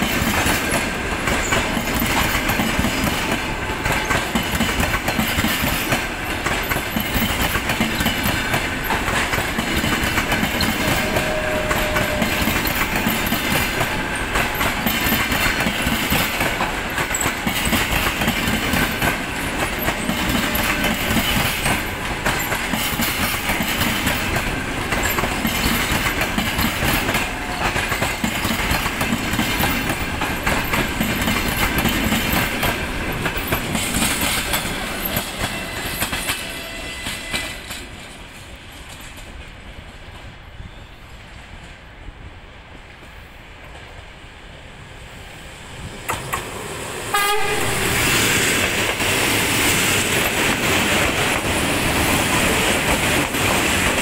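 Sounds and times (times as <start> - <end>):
train wheels clattering on rails: 0.0 - 42.0, 45.7 - 54.0.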